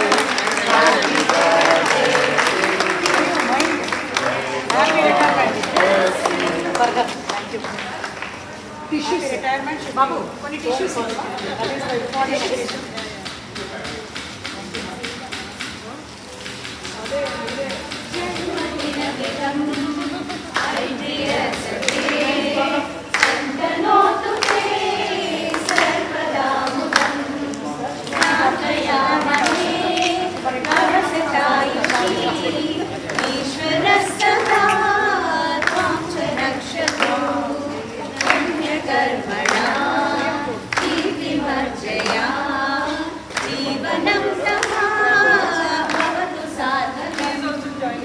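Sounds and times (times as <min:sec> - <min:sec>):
women singing in chorus: 0:00.0 - 0:07.1, 0:18.0 - 0:48.0.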